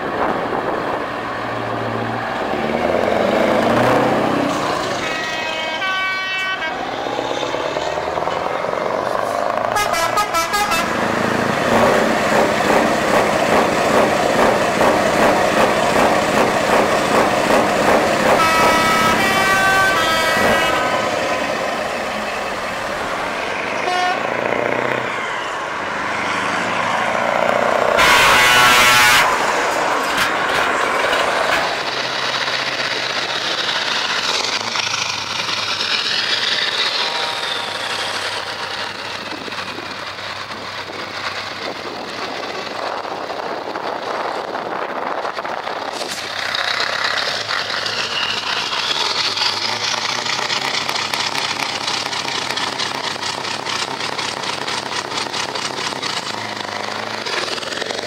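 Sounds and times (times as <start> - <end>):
truck engines throbbing: 0.0 - 58.0
long loud air horn blast: 5.0 - 6.9, 9.8 - 11.0, 18.4 - 21.0, 23.8 - 24.3, 28.0 - 29.6, 36.9 - 38.0.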